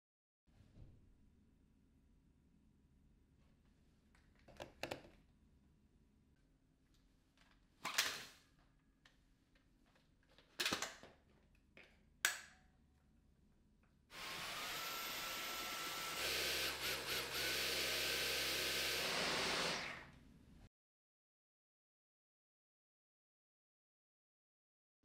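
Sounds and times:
cordless vacuum whining: 0:14.1 - 0:20.2.

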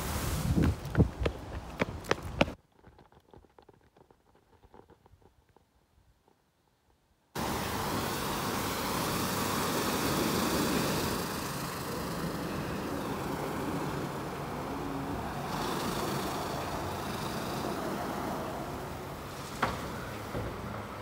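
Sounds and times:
water spraying: 0:00.0 - 0:01.0, 0:07.4 - 0:20.3
car wash brushes scrubbing: 0:07.6 - 0:19.6.

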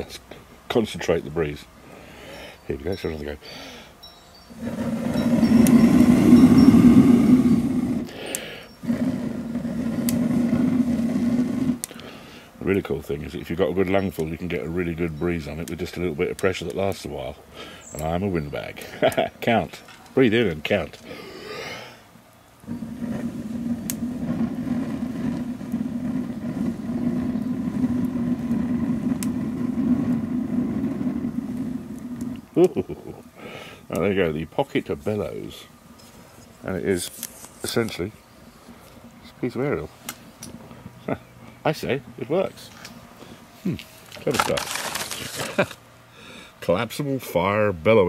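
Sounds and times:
quick breath in: 0:01.8 - 0:02.6, 0:03.4 - 0:04.0, 0:08.1 - 0:08.7, 0:33.4 - 0:33.9
blowing air through bellows tube: 0:04.5 - 0:12.6, 0:22.6 - 0:32.6
quick breath drawn in: 0:08.1 - 0:08.8, 0:33.4 - 0:33.9.

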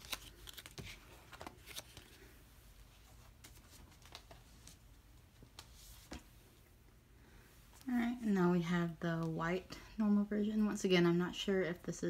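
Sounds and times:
faint taps and rustles of cards: 0:00.0 - 0:02.3, 0:03.0 - 0:06.3.

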